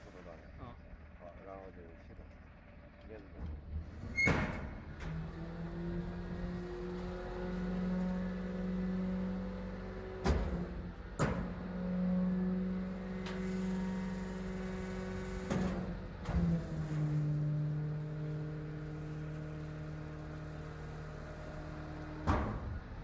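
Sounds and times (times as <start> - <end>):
garbage truck hydraulic hum: 9.6 - 23.0.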